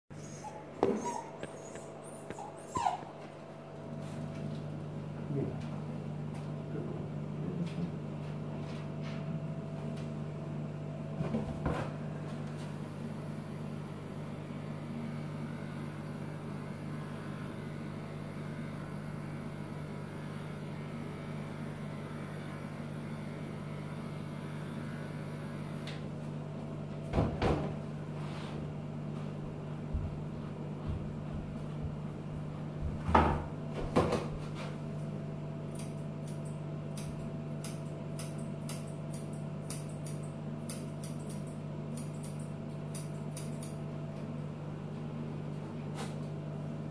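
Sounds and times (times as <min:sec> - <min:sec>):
electric clippers humming: 0:11.6 - 0:28.0, 0:34.0 - 0:44.8.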